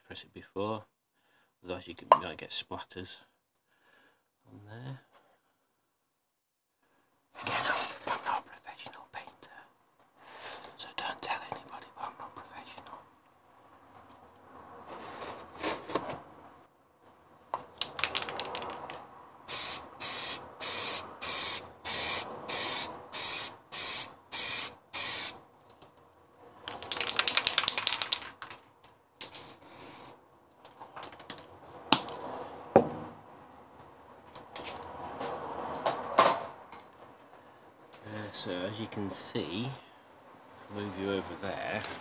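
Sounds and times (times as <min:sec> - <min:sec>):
spray can hissing: 0:19.5 - 0:25.4, 0:29.2 - 0:30.2.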